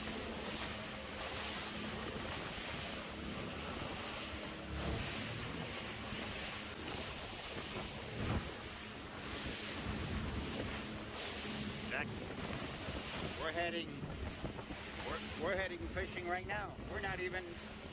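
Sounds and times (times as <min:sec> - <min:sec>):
boat engine hum: 0:00.0 - 0:17.9
wind buffeting the microphone: 0:04.8 - 0:17.9.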